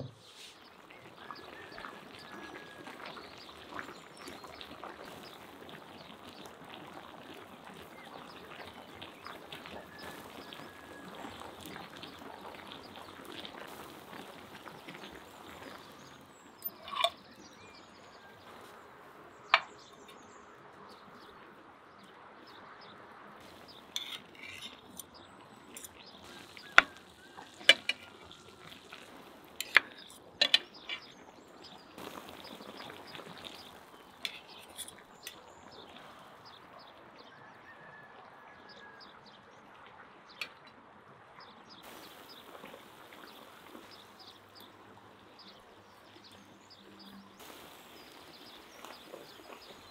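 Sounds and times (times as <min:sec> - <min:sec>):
faint outdoor background: 0:00.0 - 0:49.9
cutlery clinking on ceramic platter: 0:16.6 - 0:17.2.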